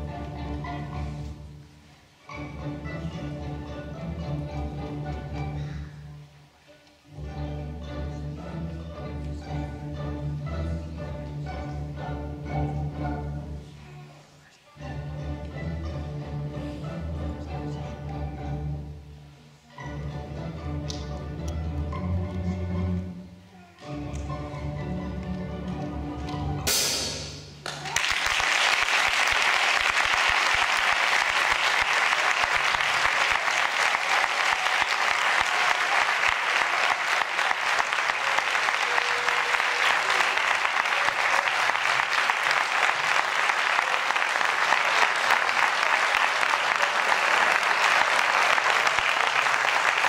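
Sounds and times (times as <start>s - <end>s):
audience applause: 27.6s - 50.0s.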